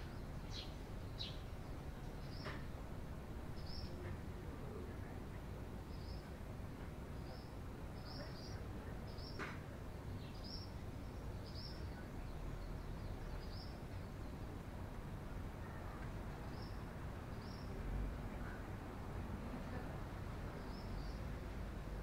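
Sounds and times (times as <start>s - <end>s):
sparrow chirping: 0.4s - 2.5s.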